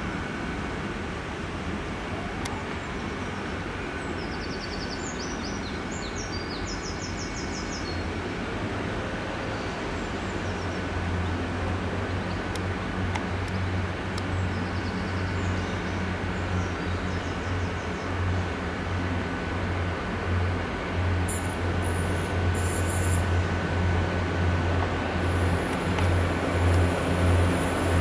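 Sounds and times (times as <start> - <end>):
diesel train engine running: 8.0 - 28.0.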